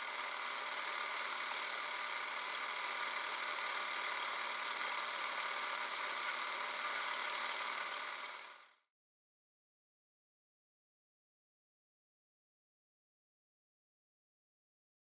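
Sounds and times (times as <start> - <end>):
film projector clattering: 0.0 - 8.8.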